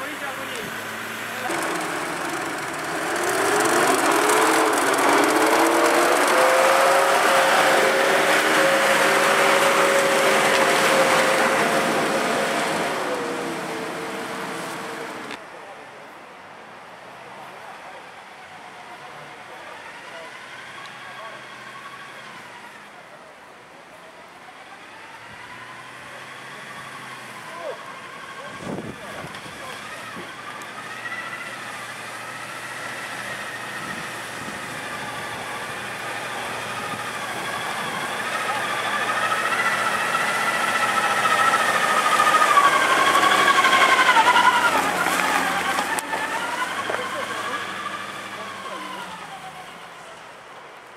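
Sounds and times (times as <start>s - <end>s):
suv engine revving high: 0.0s - 15.4s, 24.8s - 50.2s.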